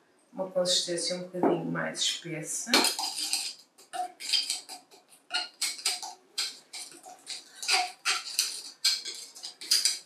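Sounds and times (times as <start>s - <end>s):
stirring tool scraping glass jar: 2.7s - 10.0s.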